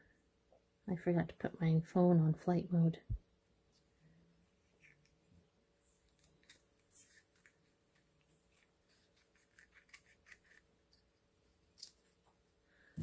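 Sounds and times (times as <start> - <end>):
small scissors snipping eggshell: 9.2 - 11.0.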